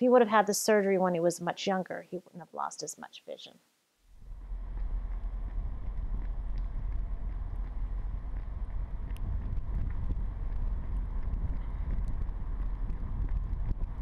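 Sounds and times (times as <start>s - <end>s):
wind buffeting microphone: 4.4s - 14.0s.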